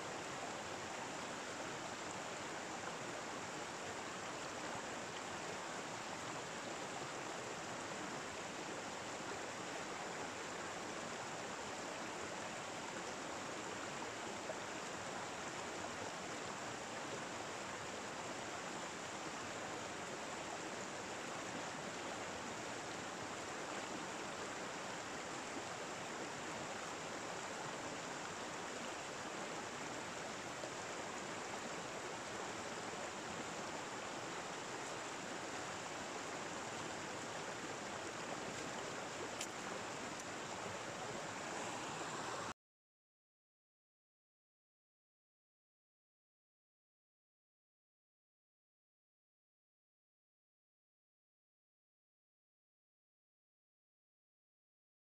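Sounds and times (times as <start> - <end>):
stream water flowing: 0.0 - 42.6.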